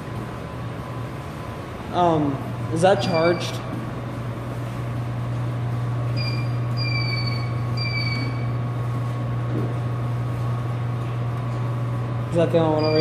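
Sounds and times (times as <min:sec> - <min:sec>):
steady low hum: 0:00.0 - 0:13.0
short high squeaks: 0:06.2 - 0:08.6, 0:12.8 - 0:13.0.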